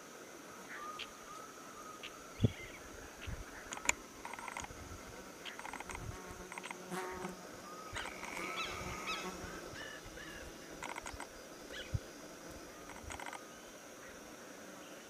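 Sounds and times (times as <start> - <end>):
high-pitched insect drone: 0.5 - 15.0
rapid clicking chirps: 3.7 - 4.7, 5.4 - 7.4, 8.0 - 8.5, 10.8 - 11.9, 12.8 - 13.4.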